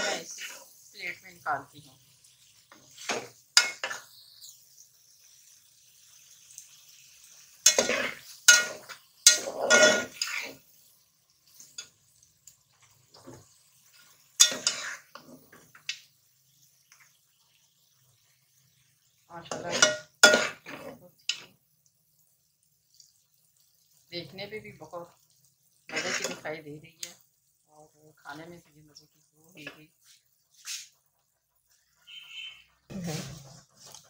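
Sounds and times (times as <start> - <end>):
metal spatula scraping a pot: 0.0 - 0.8, 2.6 - 4.6, 7.3 - 10.7, 14.0 - 15.9, 19.5 - 21.5, 25.9 - 26.5, 32.0 - 34.0.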